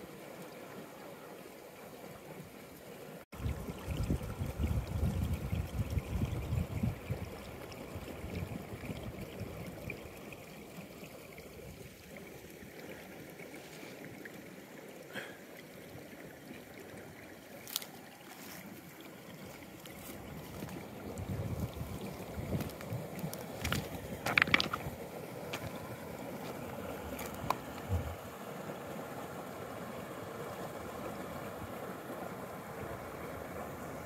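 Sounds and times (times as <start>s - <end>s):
stream water running: 0.0s - 34.0s
wind buffeting microphone: 3.4s - 7.4s, 20.2s - 25.0s, 27.1s - 28.2s.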